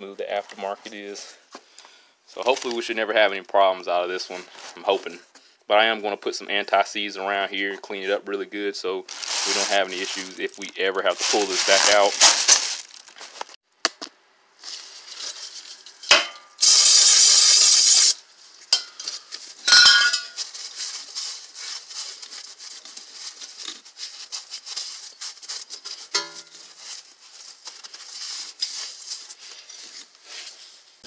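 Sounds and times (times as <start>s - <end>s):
steady hiss: 16.5s - 18.2s.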